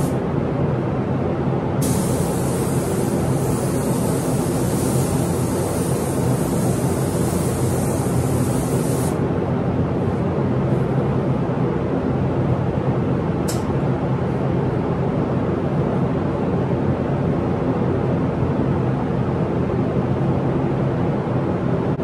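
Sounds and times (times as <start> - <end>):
mechanical drone of air system: 0.0 - 22.0
paint spray gun hissing: 1.8 - 9.2
short sharp hiss of air: 1.8 - 9.2.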